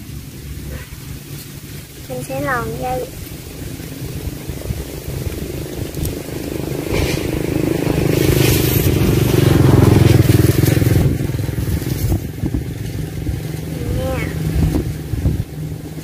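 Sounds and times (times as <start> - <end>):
motor engine humming: 0.0 - 16.0
cord scraping through wire cage: 8.1 - 11.1.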